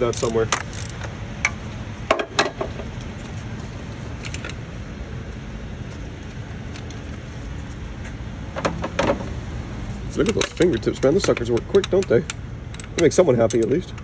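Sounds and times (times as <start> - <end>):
low shop hum: 0.0 - 14.0
hand tools clinking on metal fittings: 10.1 - 14.0.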